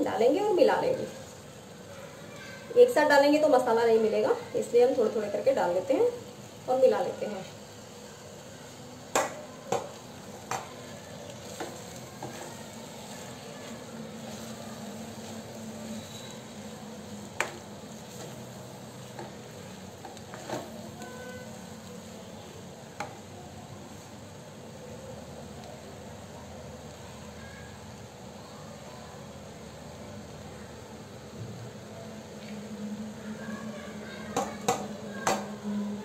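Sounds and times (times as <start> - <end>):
faint sizzle: 0.0 - 36.0
spatula stirring rice: 7.4 - 28.1
spatula knocking pan: 9.1 - 10.8, 17.4 - 18.3.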